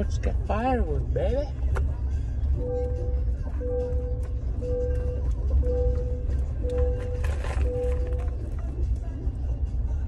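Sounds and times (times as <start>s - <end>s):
music playing in truck cab: 0.0s - 10.0s
truck rumbling on road: 0.0s - 10.0s.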